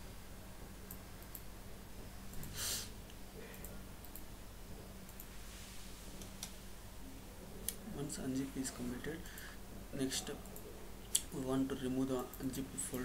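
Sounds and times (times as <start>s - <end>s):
faint electrical hum: 0.0s - 13.0s
short hiss: 2.4s - 3.0s.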